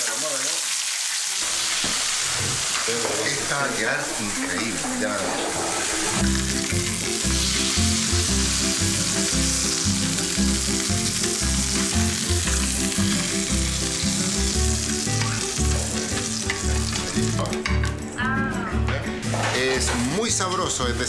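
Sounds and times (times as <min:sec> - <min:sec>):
fish sizzling in hot oil: 0:00.0 - 0:04.4, 0:05.7 - 0:17.5.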